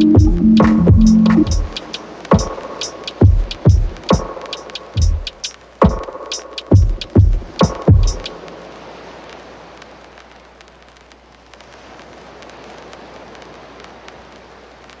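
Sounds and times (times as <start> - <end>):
electronic music with bass hit: 0.0 - 2.6
steady hiss: 0.0 - 15.0
faint crackles: 7.4 - 15.0.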